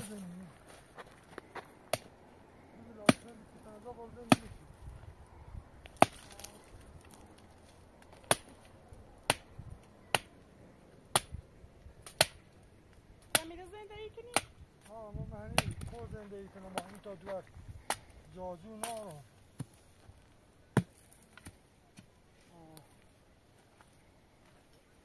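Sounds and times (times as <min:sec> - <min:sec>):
tool chopping: 0:08.1 - 0:08.6, 0:15.5 - 0:15.8.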